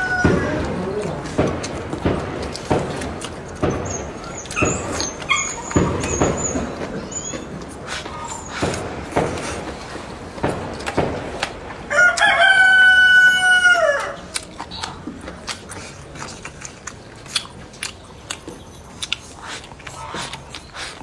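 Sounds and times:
rooster crowing: 0.0 - 0.8, 11.9 - 14.3.

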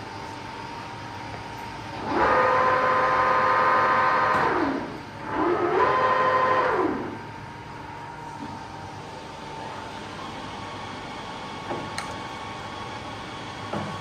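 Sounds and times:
lathe spinning up and down: 1.9 - 7.7.

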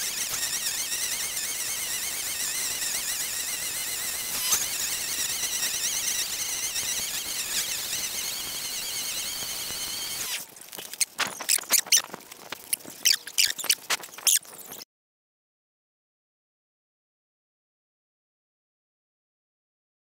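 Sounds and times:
string trimmer whining: 0.0 - 12.0
high-pitched squeaks: 0.0 - 14.8.

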